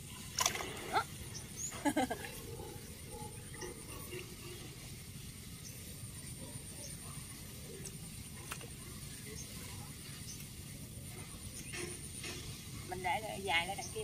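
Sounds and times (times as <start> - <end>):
small water splashes: 0.0 - 1.6.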